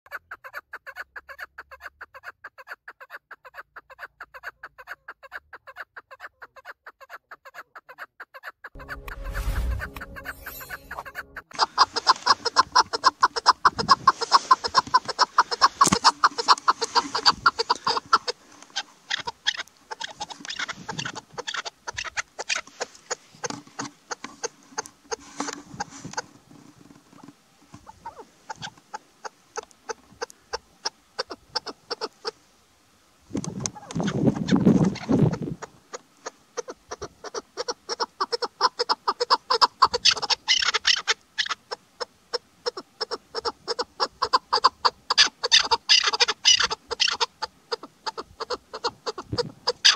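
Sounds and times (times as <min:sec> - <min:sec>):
partridge clucking call: 0:00.1 - 0:25.9, 0:33.6 - 0:49.9
partridge calling rapid notes: 0:08.8 - 0:22.6, 0:43.0 - 0:49.9.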